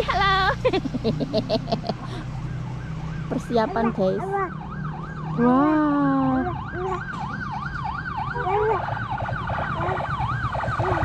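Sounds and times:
engine rumbling: 0.0 - 11.0
siren yelping: 1.7 - 11.0
held siren tone: 2.3 - 11.0.

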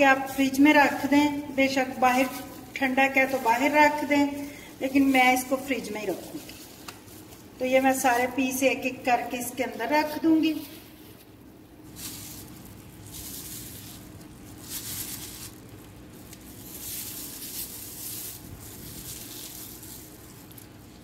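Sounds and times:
plastic glove rustling: 0.0 - 21.0.

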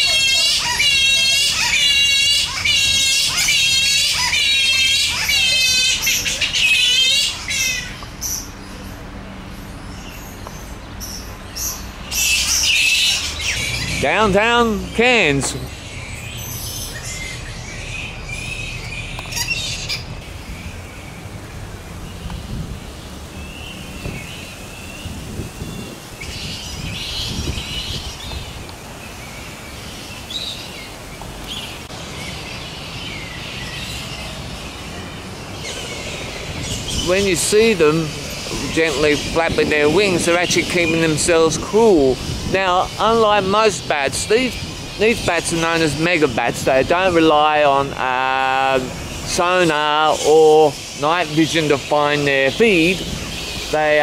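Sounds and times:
bats screeching: 0.0 - 8.5, 11.0 - 20.3, 35.6 - 54.0
bats squeaking: 0.0 - 8.5, 10.6 - 20.6, 35.6 - 54.0
flying foxes chattering: 0.0 - 9.0, 9.6 - 21.3, 29.4 - 54.0.

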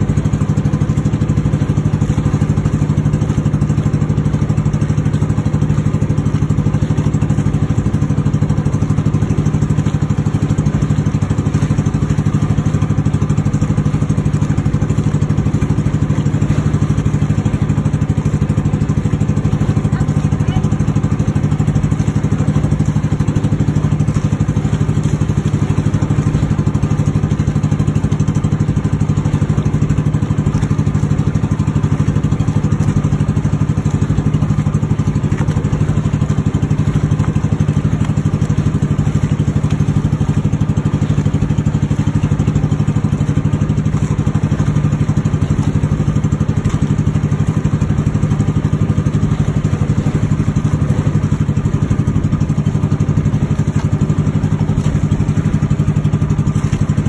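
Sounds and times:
boat engine droning: 0.0 - 57.0.

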